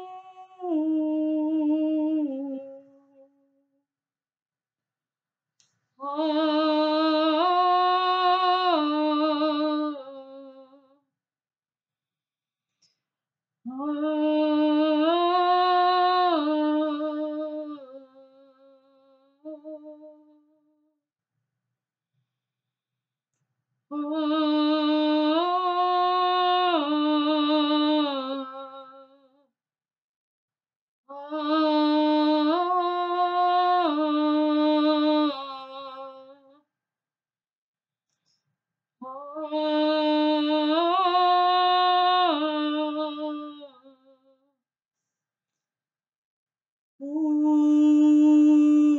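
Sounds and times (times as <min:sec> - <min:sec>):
woman singing held tone: 0:00.0 - 0:03.3, 0:39.0 - 0:43.9, 0:47.0 - 0:48.9
woman singing wordless vowel: 0:00.0 - 0:03.5, 0:06.0 - 0:10.9, 0:13.7 - 0:20.5, 0:23.9 - 0:29.4, 0:31.1 - 0:36.6, 0:39.0 - 0:44.3, 0:47.0 - 0:48.9.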